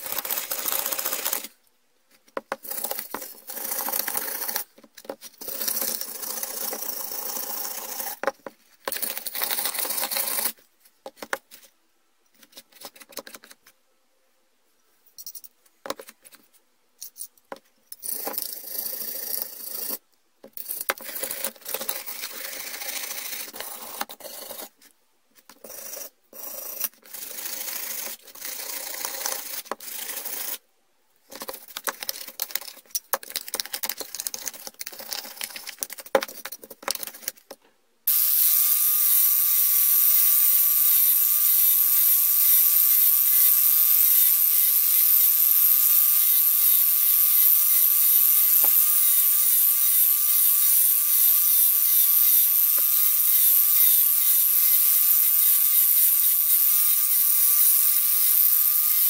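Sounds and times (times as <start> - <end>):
angle grinder whining: 38.1 - 59.0.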